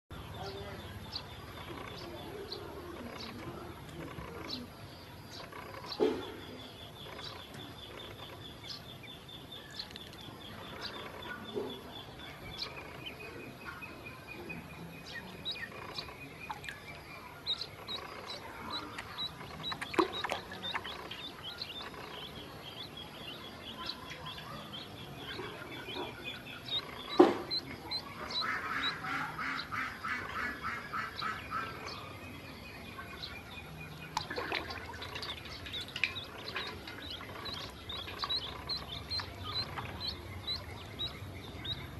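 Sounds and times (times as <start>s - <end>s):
ducklings peeping: 0.1s - 41.9s
sharp knocks: 27.1s - 27.7s.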